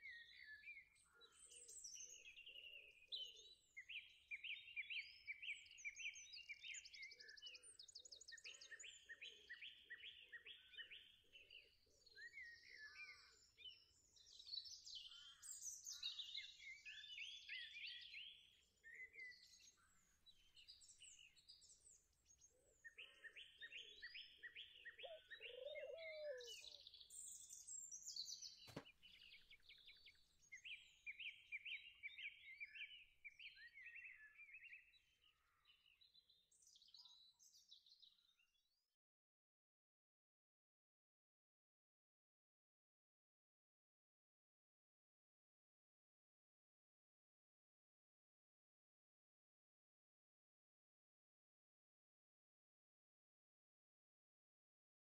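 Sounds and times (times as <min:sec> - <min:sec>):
songbirds singing: 0:00.0 - 0:39.0.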